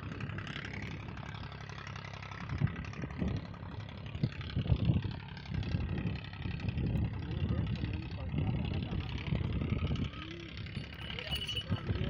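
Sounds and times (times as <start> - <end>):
wind buffeting microphone: 2.4 - 12.0.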